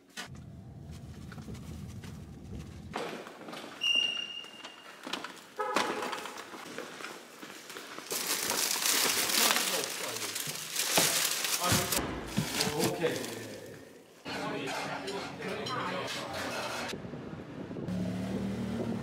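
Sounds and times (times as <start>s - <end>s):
car engine and road rumble: 0.1s - 3.0s, 16.9s - 19.0s.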